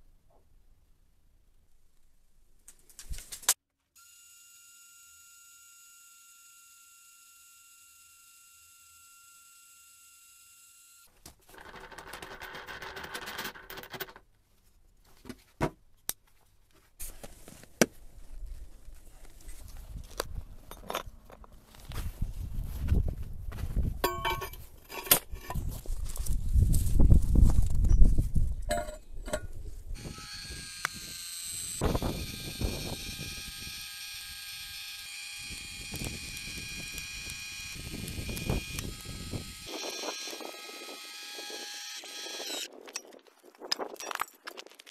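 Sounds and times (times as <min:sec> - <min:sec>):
electric jack motor whining: 0:04.0 - 0:11.1, 0:30.0 - 0:42.7.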